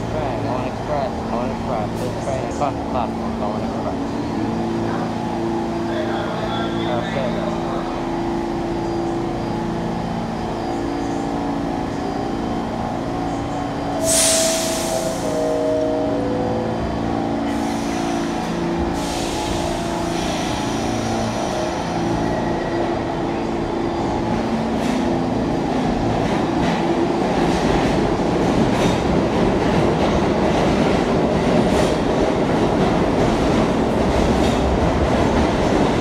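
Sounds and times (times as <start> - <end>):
subway train equipment hum: 0.0 - 36.0
air hissing: 14.0 - 15.4.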